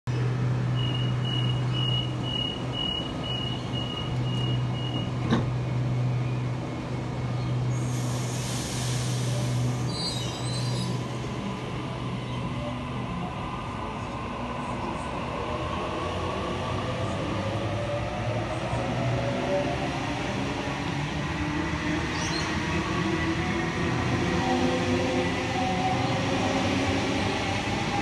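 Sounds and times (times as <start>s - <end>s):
electric train departing: 0.2s - 28.0s
faint train squeals: 0.7s - 11.2s
train doors thudding shut: 3.4s - 5.6s
air hiss: 7.8s - 10.2s.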